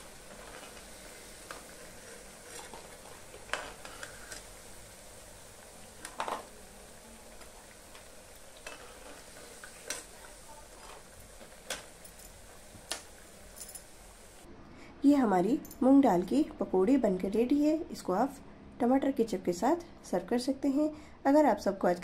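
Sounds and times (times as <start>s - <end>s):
food sizzling in hot oil: 0.0s - 14.5s.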